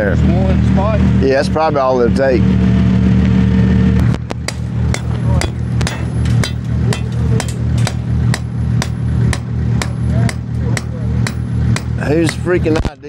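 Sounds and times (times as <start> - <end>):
engine idling: 0.0 - 13.0
sledgehammer striking metal spike: 4.4 - 12.5.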